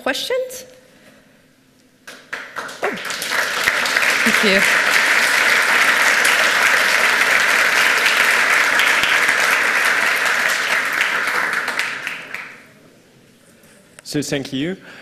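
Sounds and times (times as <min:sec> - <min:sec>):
audience applauding: 0:02.1 - 0:12.7.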